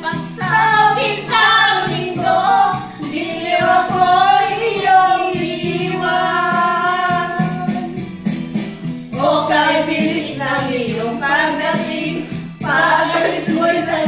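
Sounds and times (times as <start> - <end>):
group singing: 0.0 - 8.0, 9.1 - 14.0
pop backing track: 0.0 - 14.0.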